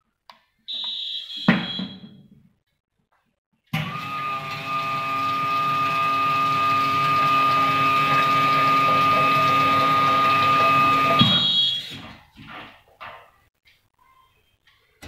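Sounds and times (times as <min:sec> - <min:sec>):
pump whining: 0:03.8 - 0:12.2.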